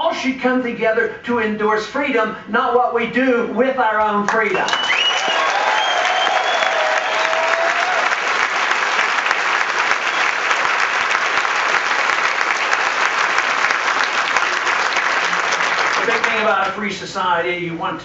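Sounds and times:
audience applauding: 4.6 - 16.8.

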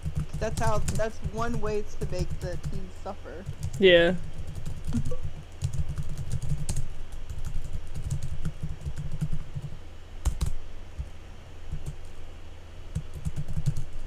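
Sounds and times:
typing on keyboard: 0.1 - 2.8, 3.4 - 10.6, 13.0 - 14.0.

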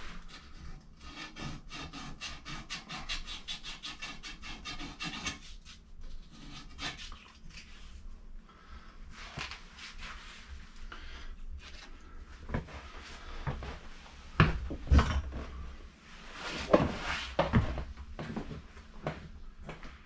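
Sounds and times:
sandpaper rubbing copper pipe: 0.0 - 8.0.

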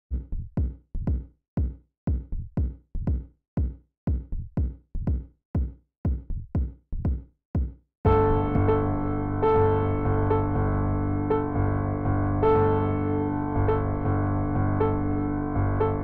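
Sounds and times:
drum machine kick: 0.1 - 8.8
synthesizer and piano music: 8.1 - 16.0.

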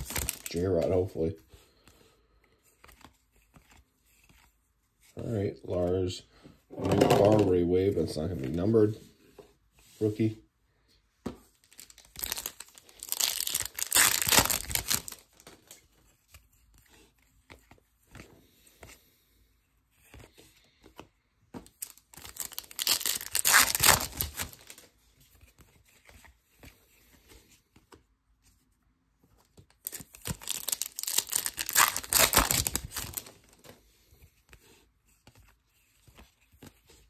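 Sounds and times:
card pack wrappers tearing: 0.0 - 0.8, 11.7 - 15.7, 21.8 - 24.8, 29.8 - 33.6.

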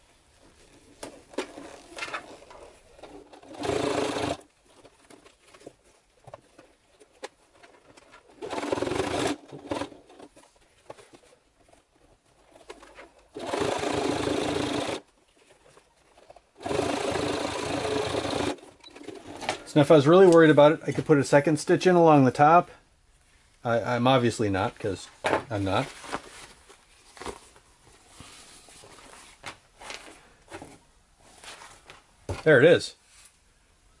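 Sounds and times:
sewing machine stitching: 1.4 - 4.5, 8.3 - 10.4, 13.2 - 15.0, 16.6 - 19.5.

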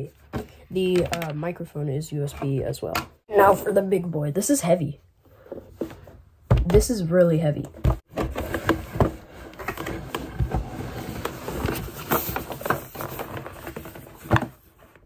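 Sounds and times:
cardboard scraping and rustling: 8.0 - 15.0.

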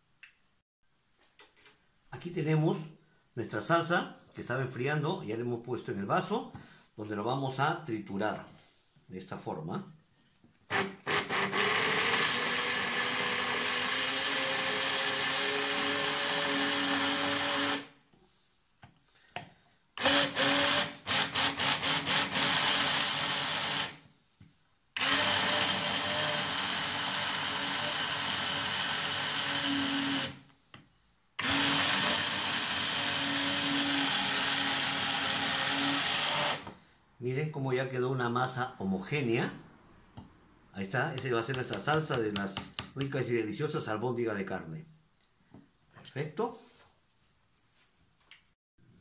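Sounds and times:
immersion blender motor running: 10.7 - 17.9, 20.0 - 24.0, 25.0 - 30.4, 31.4 - 36.7.

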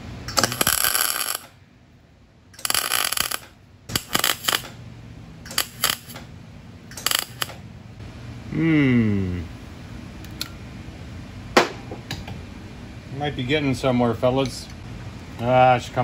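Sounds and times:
mig welder crackling: 0.0 - 1.6, 2.5 - 4.8, 5.4 - 7.7.

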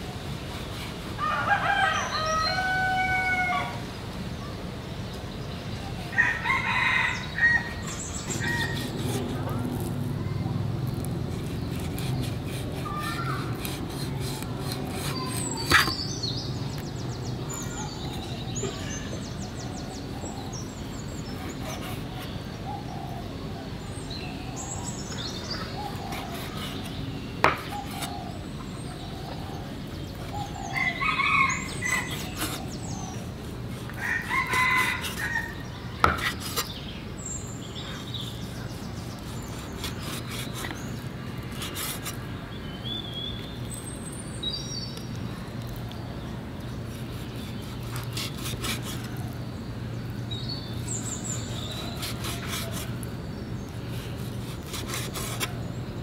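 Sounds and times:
rooster crowing: 1.2 - 3.8, 6.1 - 8.9, 30.6 - 32.2, 34.0 - 35.6
small birds chirping: 4.4 - 56.0
cleaver chopping on wooden board: 26.1 - 28.2, 36.0 - 36.7.

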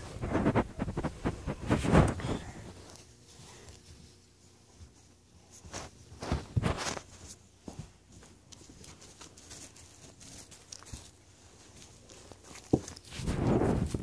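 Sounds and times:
puppy scrabbling on bedding: 0.0 - 3.2, 3.8 - 14.0
faint scratching: 0.0 - 4.2.

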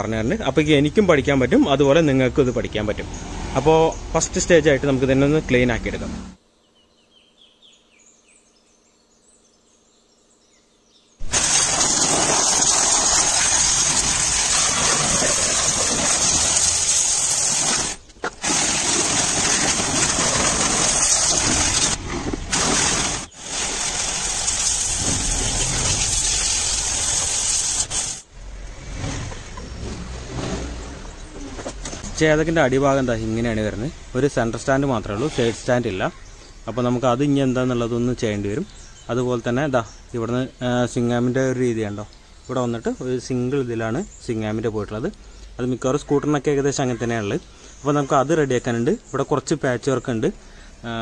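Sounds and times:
pressure washer spraying water: 11.2 - 28.3.

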